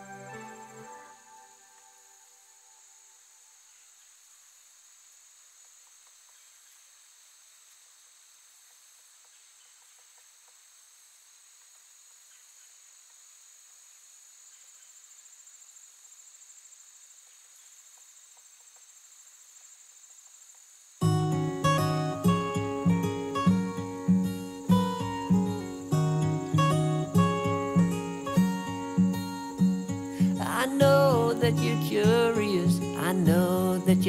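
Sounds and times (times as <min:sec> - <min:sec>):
insect pulsing trill: 0:00.0 - 0:04.1, 0:14.4 - 0:34.0
insects chorus: 0:00.0 - 0:34.0
strummed acoustic guitar music: 0:21.0 - 0:34.0.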